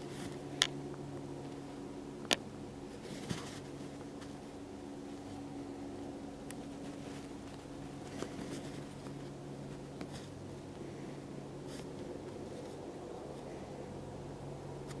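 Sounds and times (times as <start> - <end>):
distant helicopter drone: 0.0 - 15.0
faint clicks and scratches: 6.4 - 10.9.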